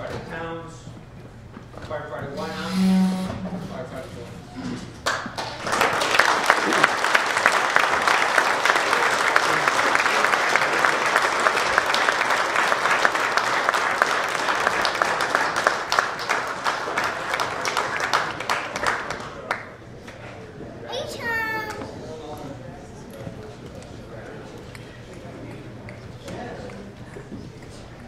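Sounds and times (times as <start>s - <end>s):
audience applauding: 5.0s - 19.7s.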